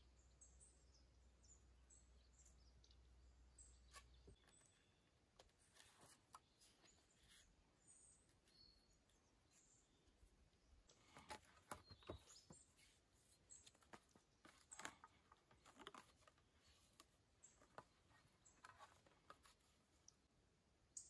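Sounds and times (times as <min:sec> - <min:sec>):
wooden poles clicking and rustling: 0:10.9 - 0:19.8.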